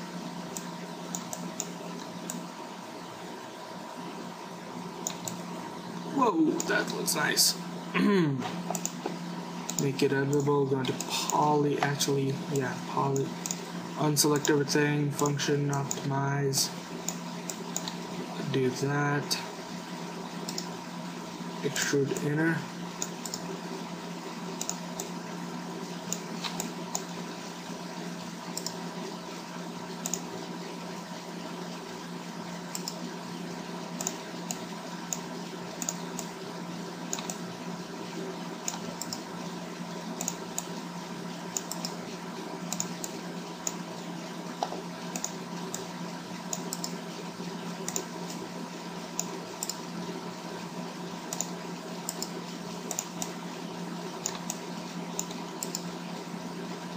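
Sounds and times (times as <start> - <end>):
steady low hum: 0.0 - 56.9
keyboard and mouse clicks: 0.5 - 2.4, 5.0 - 5.4, 8.5 - 13.6, 14.3 - 14.6, 15.2 - 16.1, 17.0 - 18.0, 20.4 - 20.7, 23.0 - 23.5, 24.5 - 25.1, 26.1 - 27.1, 28.5 - 28.8, 30.0 - 30.3, 32.7 - 33.0, 34.0 - 36.3, 37.1 - 37.4, 38.6 - 39.2, 40.2 - 40.7, 41.5 - 42.0, 42.7 - 43.8, 44.6 - 45.9, 46.5 - 47.0, 47.8 - 48.4, 49.2 - 49.8, 51.3 - 53.4, 54.2 - 55.9.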